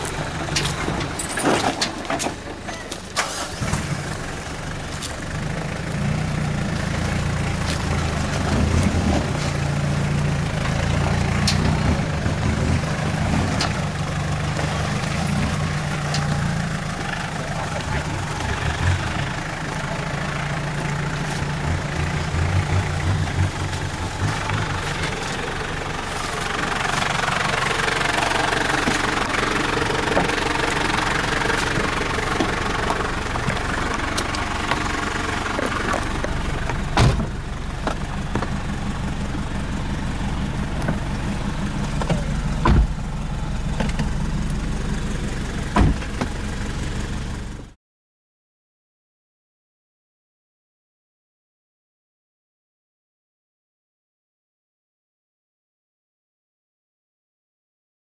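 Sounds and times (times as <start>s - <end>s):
off-road vehicle engine running: 0.0s - 47.8s.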